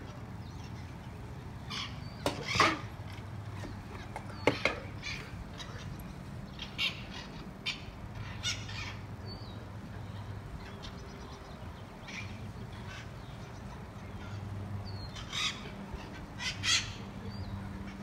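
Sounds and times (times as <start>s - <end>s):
parrots squawking: 1.7s - 9.1s, 15.1s - 17.1s.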